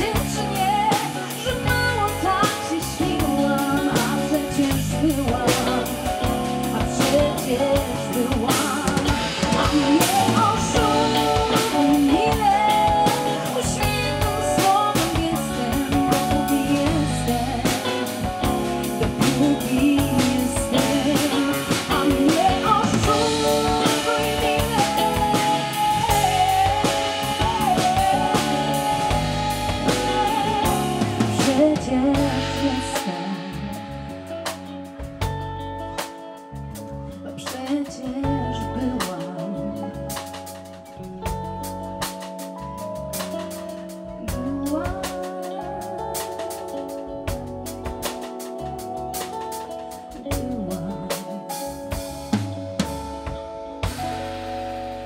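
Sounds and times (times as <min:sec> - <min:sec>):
woman singing: 0:00.0 - 0:34.8, 0:37.1 - 0:42.2, 0:43.1 - 0:52.3
pop band playing: 0:00.0 - 0:55.0.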